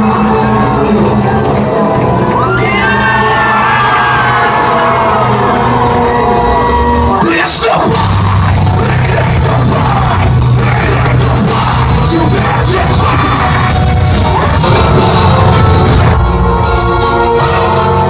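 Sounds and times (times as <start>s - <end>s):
live heavy metal band: 0.0s - 18.0s
harsh yelled vocals: 2.3s - 16.2s.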